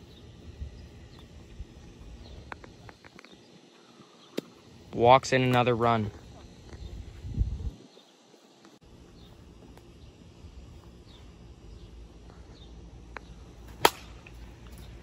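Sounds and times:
plastic bat hitting ball: 0:13.7 - 0:14.3.

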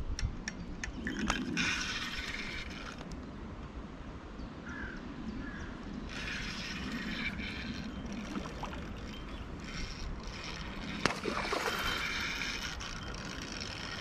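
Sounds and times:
fishing reel cranking: 0:01.0 - 0:03.2, 0:06.0 - 0:14.0.

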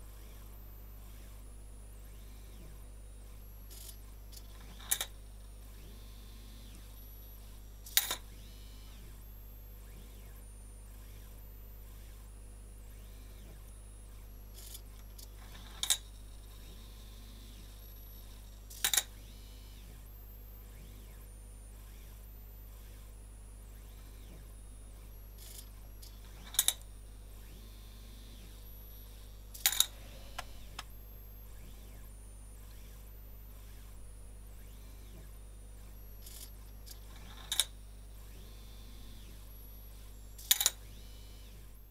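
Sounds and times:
steady low hum: 0:00.0 - 0:41.9
stepper motors whining: 0:27.4 - 0:34.0.

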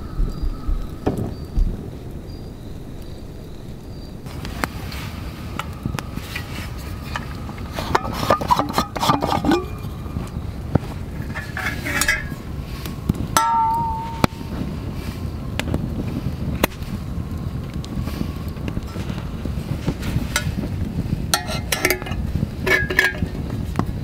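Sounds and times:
metal canteen clinking and scraping: 0:04.9 - 0:12.5, 0:13.4 - 0:14.3, 0:18.9 - 0:20.7, 0:21.3 - 0:23.5
low rushing background: 0:09.4 - 0:23.7
short metallic rings: 0:13.4 - 0:14.3.

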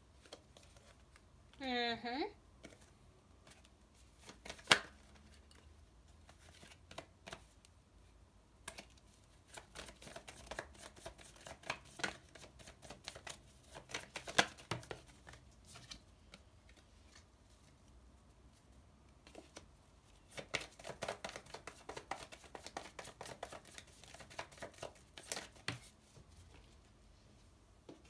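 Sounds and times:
cards shuffling: 0:02.6 - 0:05.6, 0:06.3 - 0:07.6, 0:08.6 - 0:17.7, 0:19.2 - 0:26.7.

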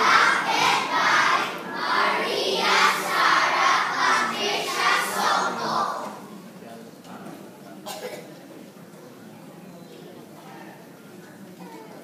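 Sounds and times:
children reciting in unison: 0:00.0 - 0:06.3.

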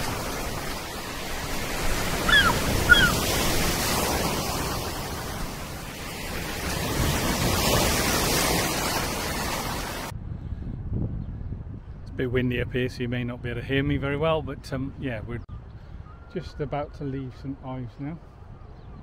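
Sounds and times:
wind on microphone: 0:00.0 - 0:16.3
falling bird calls: 0:01.0 - 0:03.7, 0:15.4 - 0:17.1.

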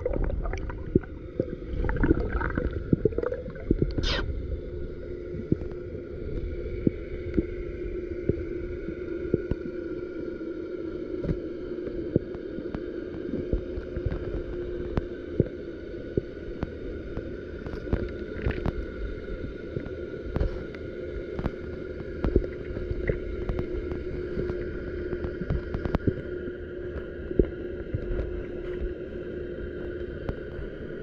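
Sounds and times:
motor hum: 0:00.0 - 0:07.4.

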